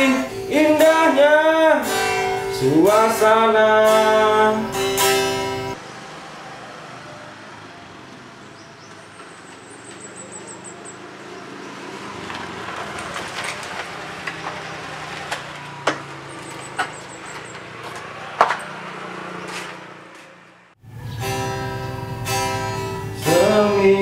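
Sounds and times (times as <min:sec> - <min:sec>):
scooter engine running: 0:04.7 - 0:23.7.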